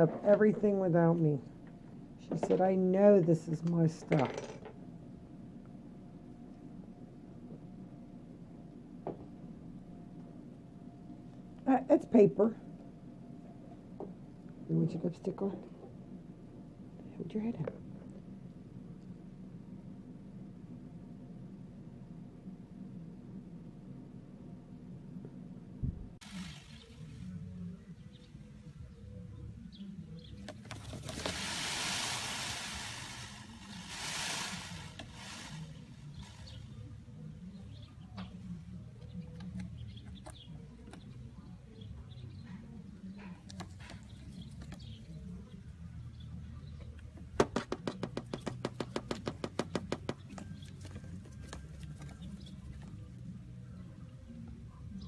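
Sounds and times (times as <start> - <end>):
peacock tail feathers rustling: 30.5 - 36.8.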